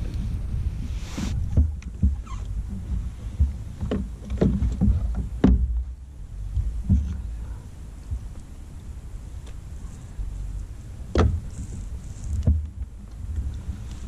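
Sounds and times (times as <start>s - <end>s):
steady low rumble: 0.0s - 14.0s
hollow knocks on kayak: 1.4s - 5.9s, 11.1s - 11.5s, 12.4s - 12.8s.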